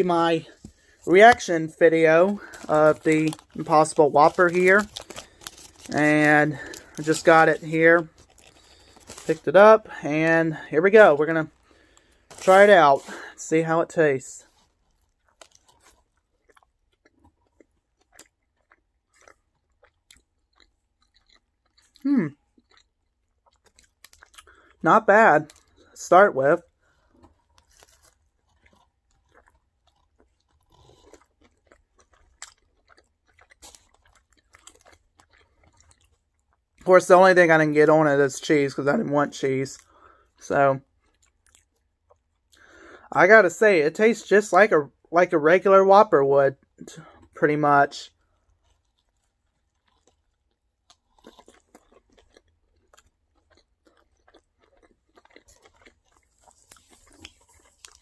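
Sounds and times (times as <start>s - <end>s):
person chewing food: 0.4s - 1.6s, 2.2s - 10.7s, 11.4s - 13.4s, 14.4s - 24.8s, 25.4s - 26.0s, 26.6s - 36.8s, 39.8s - 43.1s, 48.1s - 58.0s.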